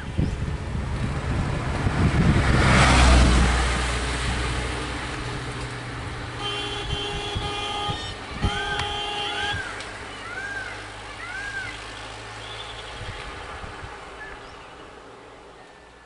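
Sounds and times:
lorry driving past: 0.0s - 16.0s
steady horn tone: 6.3s - 9.8s.

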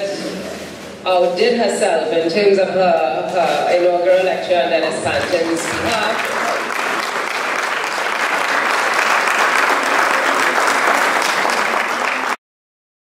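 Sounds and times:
audience clapping: 5.0s - 12.4s.

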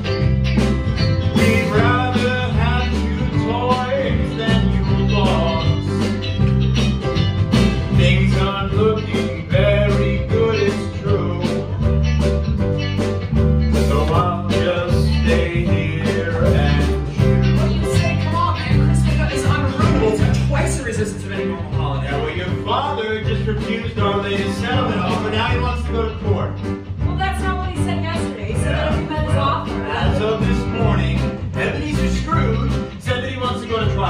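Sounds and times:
bass line: 0.0s - 34.0s
drum beat: 0.0s - 34.0s
man singing: 1.3s - 6.2s, 7.9s - 12.0s, 13.7s - 26.5s, 29.8s - 34.0s.

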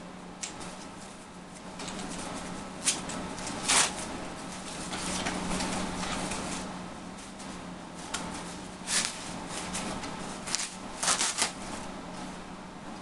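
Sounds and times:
packing wrap crinkling: 8.9s - 11.6s.

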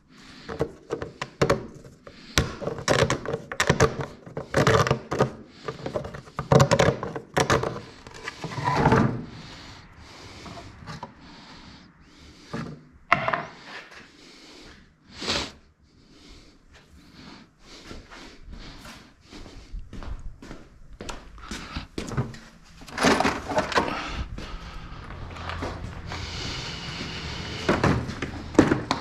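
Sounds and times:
knocks and thunks: 27.5s - 29.0s.

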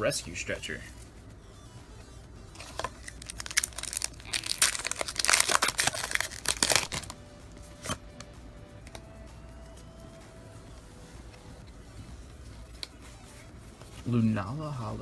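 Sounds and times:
foil wrapper crinkling and tearing: 2.7s - 7.2s.

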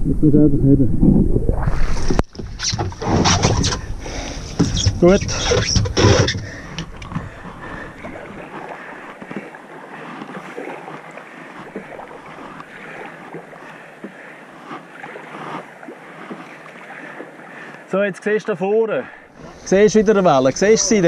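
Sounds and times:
water splashing against hull: 0.9s - 21.0s
river water rushing: 7.9s - 18.2s.

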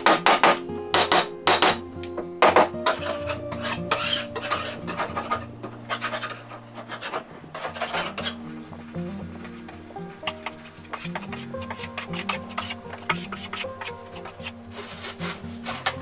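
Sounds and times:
putty knife scraping drywall: 5.9s - 8.4s, 10.8s - 16.0s.

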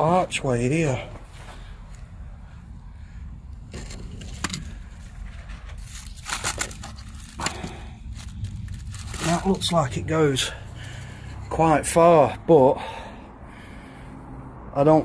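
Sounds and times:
low steady rumble: 0.0s - 14.8s
dry leaves crunching: 5.8s - 10.6s.

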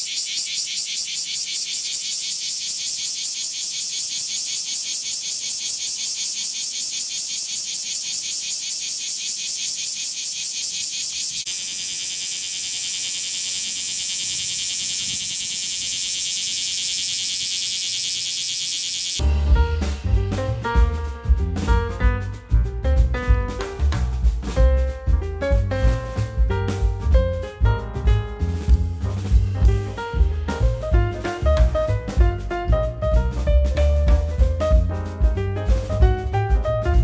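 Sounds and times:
cicada pulsing buzz: 0.0s - 19.3s.

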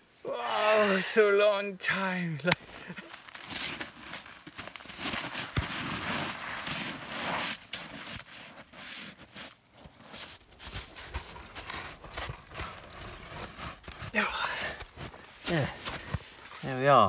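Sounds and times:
snow crunching and scraping: 2.8s - 17.0s
clothing rustling: 2.9s - 14.2s.

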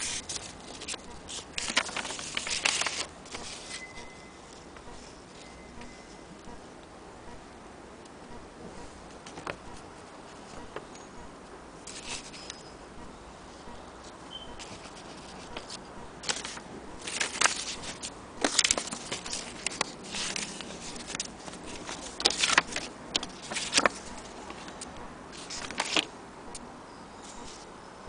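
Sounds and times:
paper rustling and crinkling: 0.0s - 5.5s, 9.2s - 10.8s, 11.9s - 12.6s, 14.6s - 26.1s, 27.2s - 27.7s.

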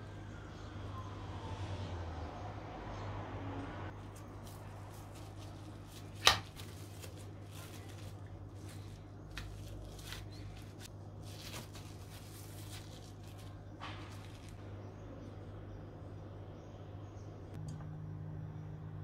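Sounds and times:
steady low hum: 0.0s - 19.0s
hands handling minced meat: 4.0s - 14.6s.

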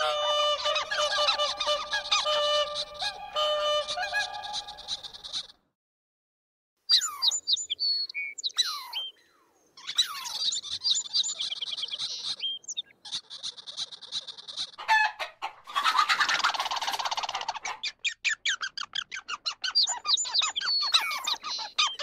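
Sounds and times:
harsh buzzy bird call: 0.0s - 5.5s.

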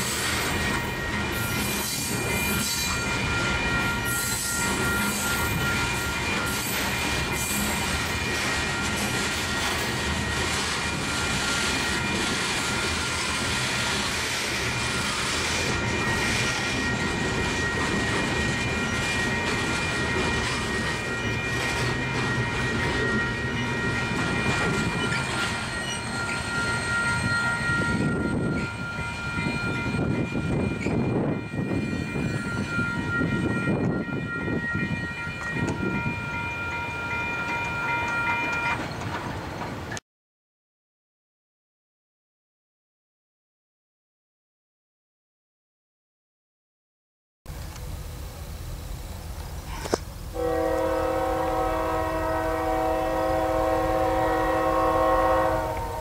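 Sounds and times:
freight train wheels rumbling on rails: 0.0s - 40.0s, 47.5s - 56.0s
high-pitched ringing tone: 0.5s - 7.0s, 15.0s - 38.8s.

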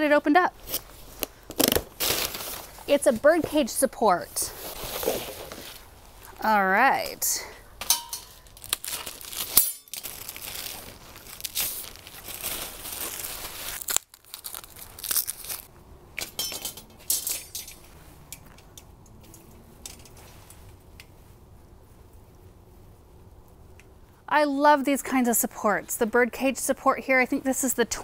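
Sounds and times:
plastic wrapping crinkling and tearing: 0.6s - 2.9s, 8.3s - 15.7s
wire parts clicking and clinking: 7.8s - 10.4s, 16.2s - 21.1s.

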